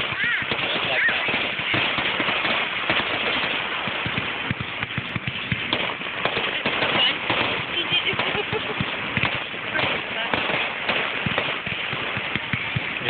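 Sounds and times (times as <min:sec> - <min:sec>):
fireworks bangs and crackles: 0:00.0 - 0:13.0.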